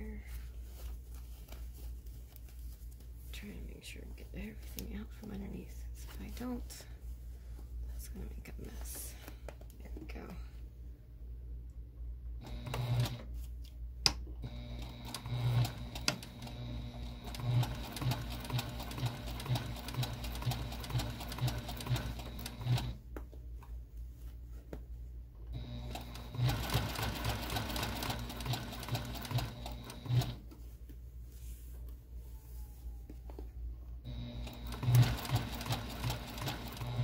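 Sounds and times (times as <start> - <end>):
electric sewing machine stitching: 12.4 - 13.2, 14.4 - 23.0, 25.6 - 30.4, 34.1 - 37.0.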